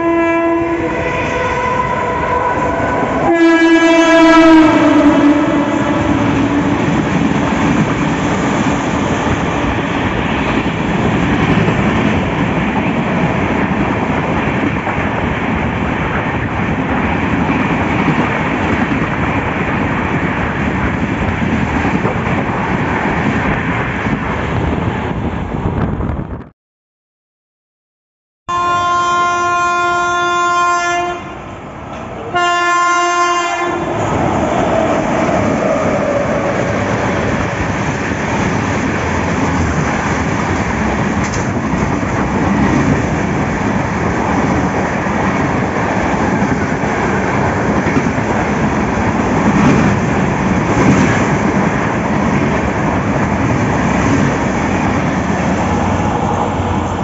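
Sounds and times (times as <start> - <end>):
locomotive horn blasts: 0.0 - 7.3, 28.5 - 31.5, 32.2 - 34.1
train wheels clacking on rails: 33.8 - 57.0.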